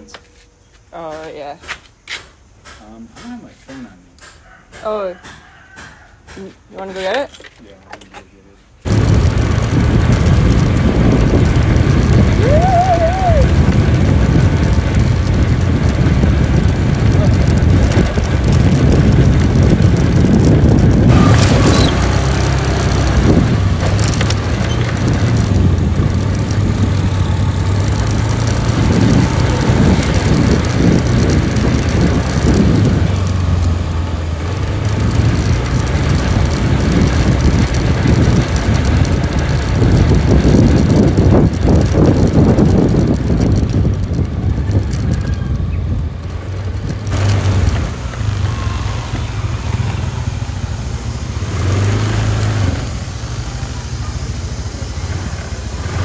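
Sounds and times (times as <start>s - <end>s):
road noise: 0.0s - 56.0s
vehicle engine hum: 5.4s - 56.0s
wind noise: 8.8s - 56.0s.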